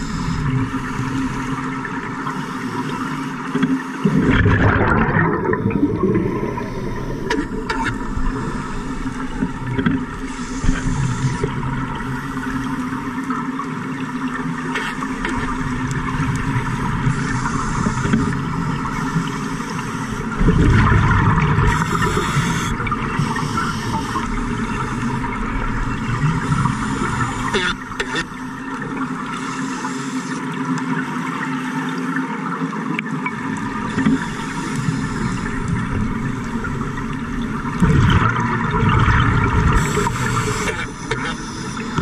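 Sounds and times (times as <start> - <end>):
bubbles gurgling and rushing: 0.0 - 29.8, 32.2 - 42.0
low underwater hum: 0.0 - 42.0
scuba regulator breathing: 6.1 - 9.4, 10.1 - 12.9, 17.0 - 20.4, 21.6 - 25.2, 26.2 - 28.5, 29.4 - 30.4, 33.9 - 35.9, 39.7 - 42.0.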